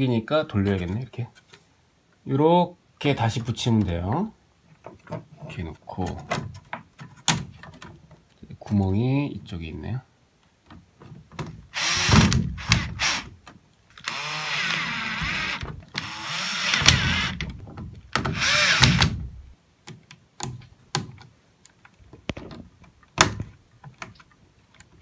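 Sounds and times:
cordless drill driving screws: 0:11.7 - 0:13.3, 0:14.0 - 0:17.5, 0:18.3 - 0:19.2.

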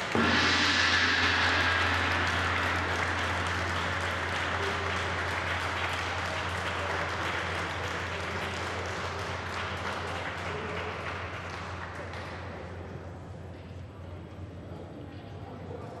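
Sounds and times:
gong stroke: 0:00.0 - 0:07.2
group applauding: 0:01.3 - 0:12.4.

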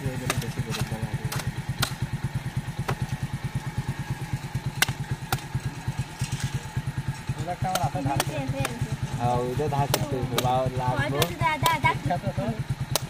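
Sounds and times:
knife chopping fruit: 0:00.0 - 0:02.1, 0:02.7 - 0:03.2, 0:04.6 - 0:05.9, 0:07.6 - 0:11.8
small engine idling: 0:00.0 - 0:13.0.

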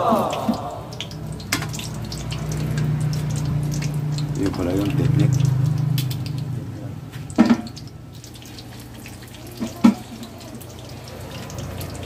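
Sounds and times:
deep-frying oil sizzling: 0:00.2 - 0:12.0.

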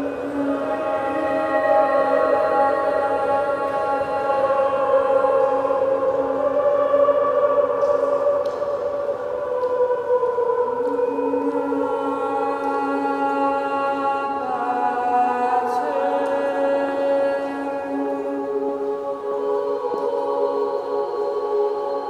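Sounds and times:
slow chant-like music: 0:00.0 - 0:22.0.

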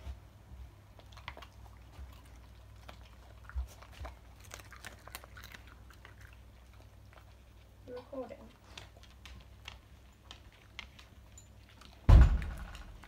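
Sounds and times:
dog chewing food: 0:00.6 - 0:13.0
soft low thump: 0:12.1 - 0:13.0.

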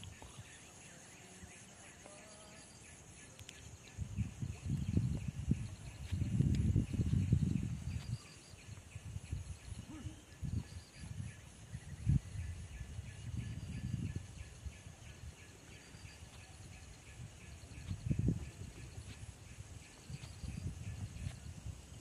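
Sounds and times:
insects chirring: 0:00.0 - 0:22.0
wind buffeting microphone: 0:03.7 - 0:22.0.

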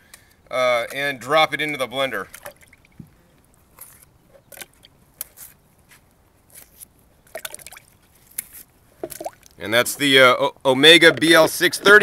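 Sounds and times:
small plops into water: 0:07.3 - 0:07.9.

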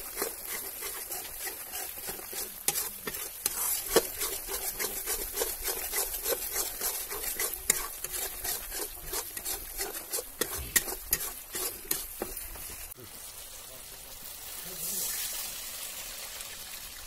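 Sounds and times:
metal spatula scraping a wok: 0:00.0 - 0:13.0
oil sizzling: 0:00.0 - 0:17.0.

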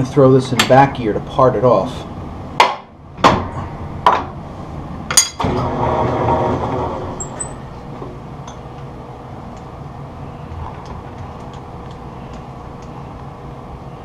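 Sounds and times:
lathe running with geared hum: 0:05.4 - 0:08.1.

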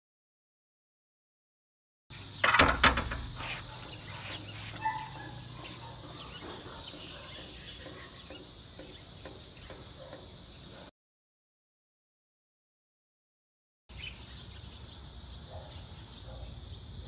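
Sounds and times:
sharp clatters: 0:02.1 - 0:05.2
birds: 0:02.1 - 0:10.9, 0:13.9 - 0:17.0
insects hissing: 0:02.1 - 0:10.9, 0:13.9 - 0:17.0.

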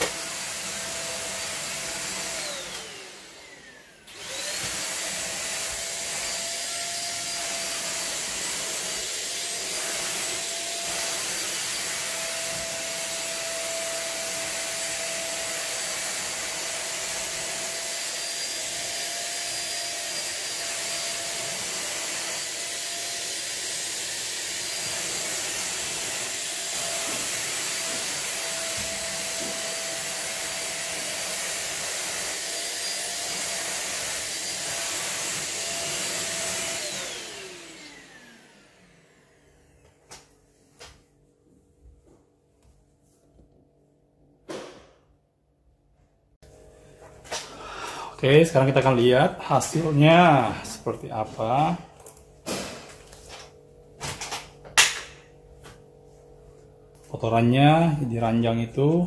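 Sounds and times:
vacuum cleaner motor whine: 0:00.0 - 0:40.3.

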